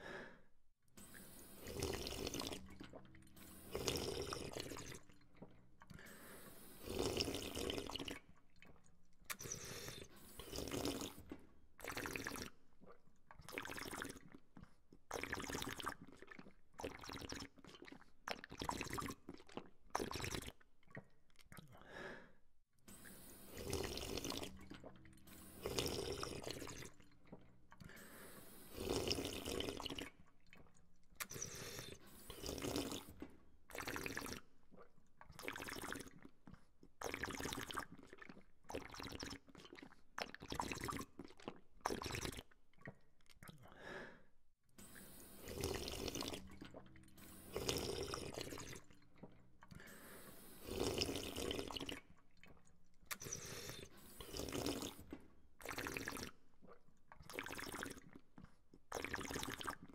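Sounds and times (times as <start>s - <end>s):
person slurping water: 1.0s - 22.3s, 22.9s - 59.9s.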